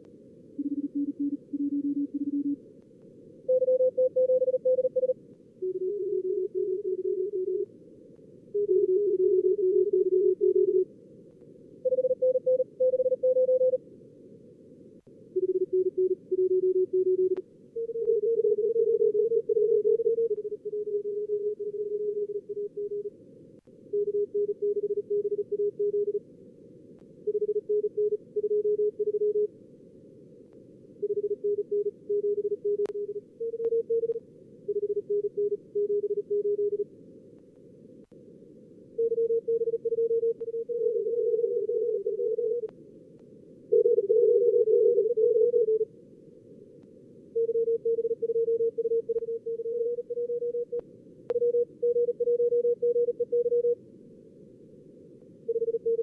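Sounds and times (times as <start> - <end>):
morse code tones: 47.4 - 53.8.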